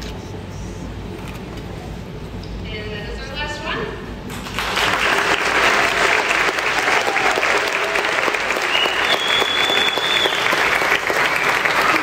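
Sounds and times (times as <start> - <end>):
crowd of children applauding: 4.4 - 12.0.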